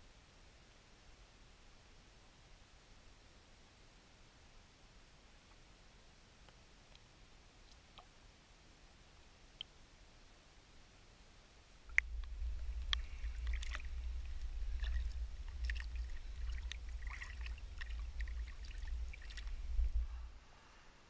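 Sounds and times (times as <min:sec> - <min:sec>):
water lapping and splashing: 0:11.9 - 0:20.1
low handling rumble: 0:11.9 - 0:20.4.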